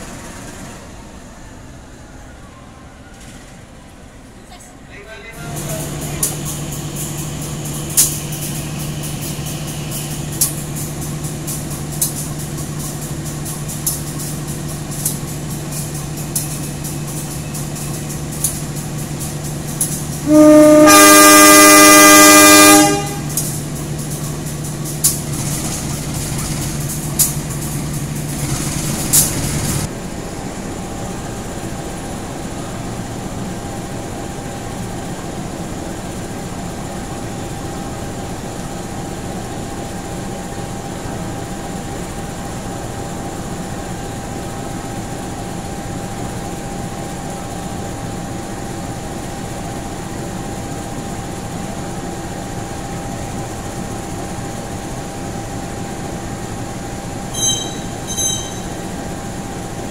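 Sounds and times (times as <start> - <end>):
locomotive idling hum: 0.0 - 59.9
locomotive horn blast: 20.2 - 23.4, 57.3 - 58.8.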